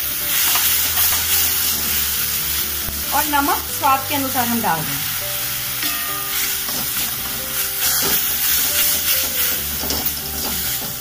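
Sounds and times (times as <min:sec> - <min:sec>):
background music: 0:00.0 - 0:11.0
sauce sizzling in a pan: 0:00.0 - 0:11.0
spatula stirring: 0:00.3 - 0:02.6, 0:05.6 - 0:11.0.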